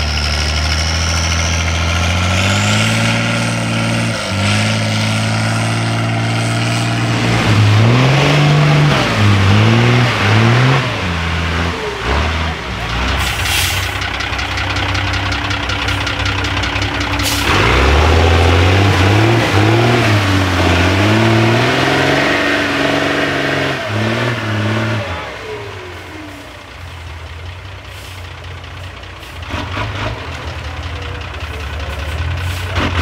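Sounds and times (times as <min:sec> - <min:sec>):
diesel truck engine revving: 0:00.0 - 0:33.0.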